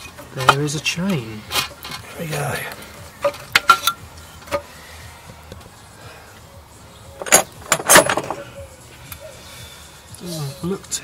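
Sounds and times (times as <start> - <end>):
metal tools clinking: 0.0 - 4.7, 7.2 - 8.5.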